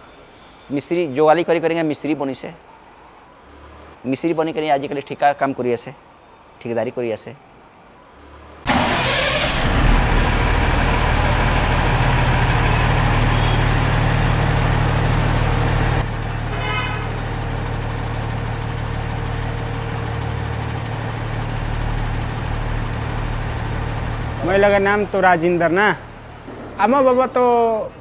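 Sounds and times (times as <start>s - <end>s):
diesel truck engine humming: 8.7s - 28.0s.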